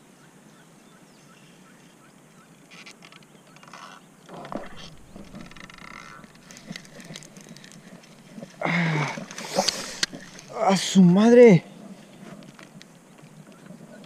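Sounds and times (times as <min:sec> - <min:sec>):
burst of noise: 0:04.3 - 0:07.3.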